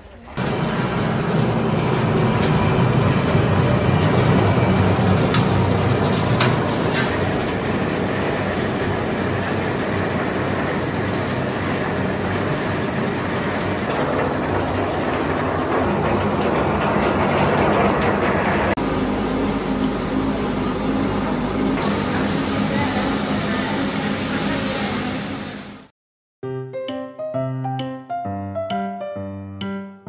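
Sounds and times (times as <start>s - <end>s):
olives clattering through machine: 0.4s - 18.8s
conveyor mechanical rattle: 0.4s - 25.0s.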